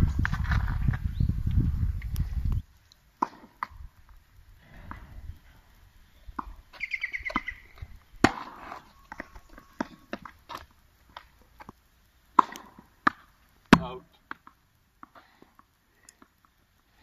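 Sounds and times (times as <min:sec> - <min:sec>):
tennis ball strikes and bounces: 0:12.4 - 0:15.1.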